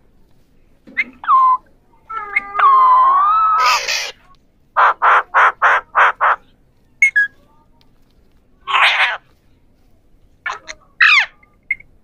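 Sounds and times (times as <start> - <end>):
parakeet harsh squawks: 3.2 - 4.2, 4.8 - 6.4, 8.7 - 9.2.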